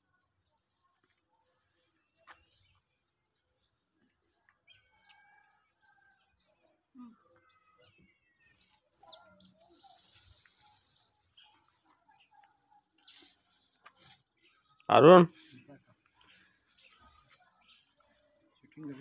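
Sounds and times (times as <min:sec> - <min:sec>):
birds chirping: 0:01.6 - 0:19.0.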